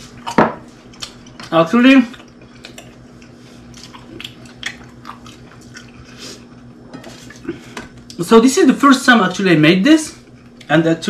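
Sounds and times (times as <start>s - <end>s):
person chewing toast: 0.1s - 8.2s.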